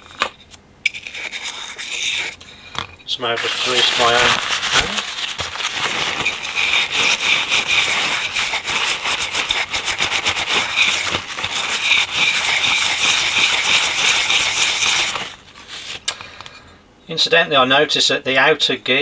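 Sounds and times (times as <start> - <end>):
stiff brush scrubbing metal: 0.9 - 2.4, 3.2 - 15.9.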